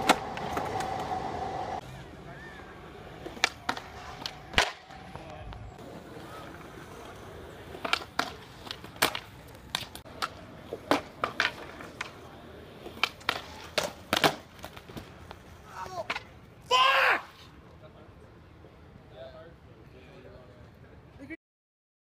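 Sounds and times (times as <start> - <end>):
skateboard clacking on concrete: 0.0 - 1.2, 3.1 - 16.3
skateboard wheels rolling: 0.0 - 17.6.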